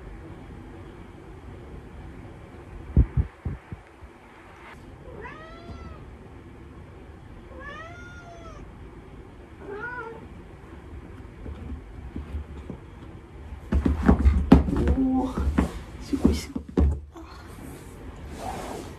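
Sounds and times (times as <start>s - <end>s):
cat meowing: 5.1s - 6.1s, 7.5s - 8.7s, 9.6s - 10.2s.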